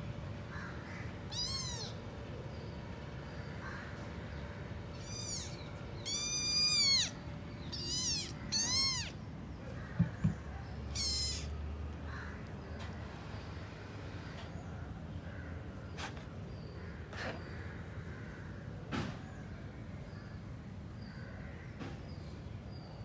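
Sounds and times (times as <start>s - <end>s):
kittens mewing: 0.6s - 2.7s, 4.0s - 12.5s
sharp taps: 9.9s - 10.5s.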